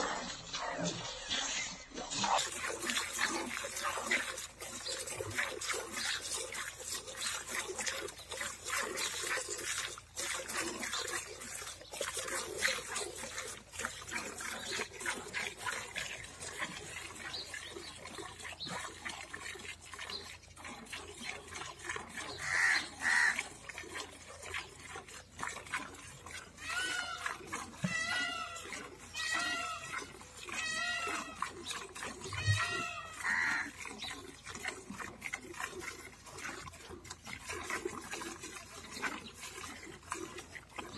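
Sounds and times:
milk squirting into steel pail: 0.0s - 40.9s.

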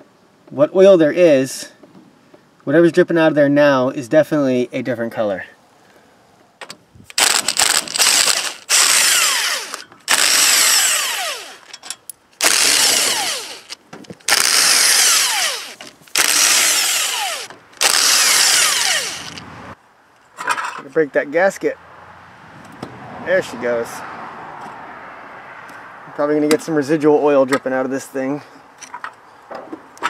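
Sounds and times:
impact wrench bursts: 7.1s - 11.8s, 12.4s - 19.4s.

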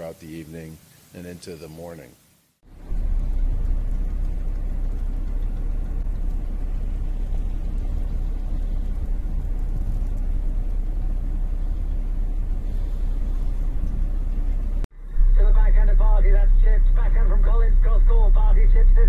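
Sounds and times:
wind buffeting microphone: 2.8s - 14.8s.

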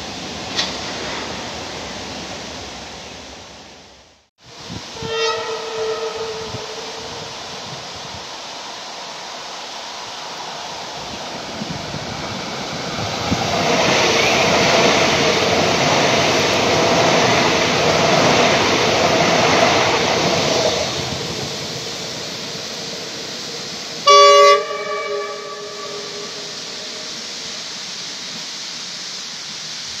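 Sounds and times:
electric train passing on rails: 0.0s - 30.0s
train horn blast: 4.8s - 7.4s, 24.0s - 27.2s.

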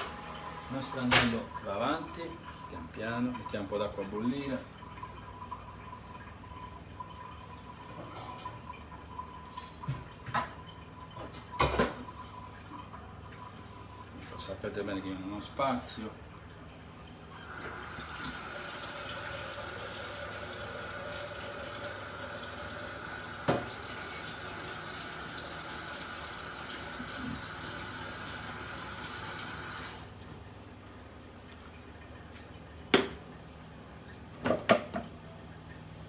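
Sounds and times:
tap water running into saucepan: 15.0s - 30.2s.

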